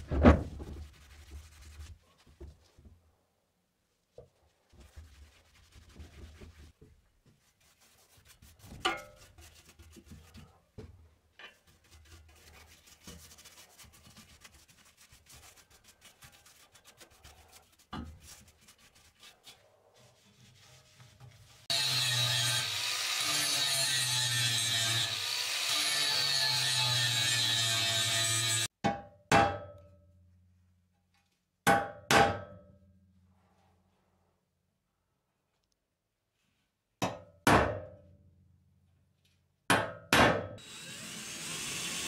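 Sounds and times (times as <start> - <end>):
brush painting steel: 0.6 - 2.8, 4.0 - 21.7
angle grinder grinding steel: 21.7 - 28.7, 40.6 - 42.0.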